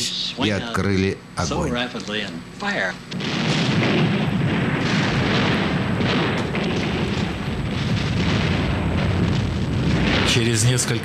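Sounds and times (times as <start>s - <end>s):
faint crackling: 1.8s - 11.0s
rumble of guns and explosions: 3.0s - 11.0s.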